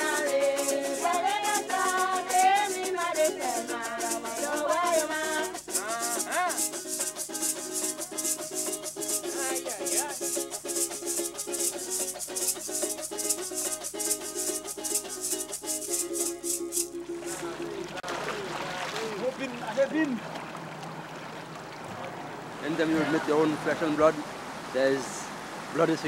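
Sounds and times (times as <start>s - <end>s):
women singing together: 0.0s - 6.8s
shaker beat: 0.0s - 18.0s
strummed guitar: 0.0s - 18.1s.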